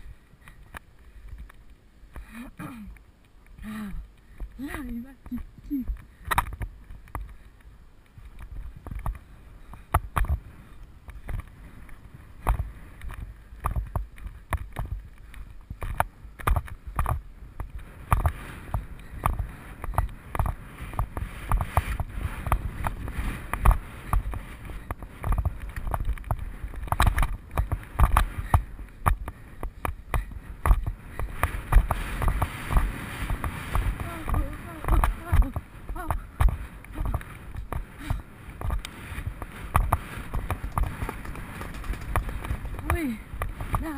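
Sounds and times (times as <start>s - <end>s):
horse hoofbeats on grass: 11.1s - 43.9s.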